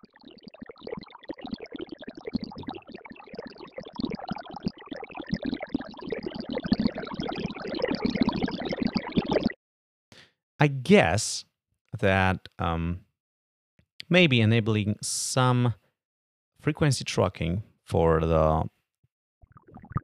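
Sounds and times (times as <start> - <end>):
synthesized bubbling water trickle: 0.0 - 9.6, 19.4 - 20.0.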